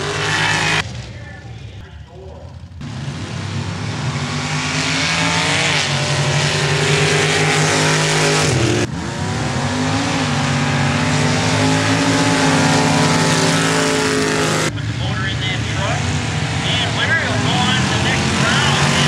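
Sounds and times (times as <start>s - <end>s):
engine revving loudly: 0.0s - 1.0s, 2.8s - 19.0s.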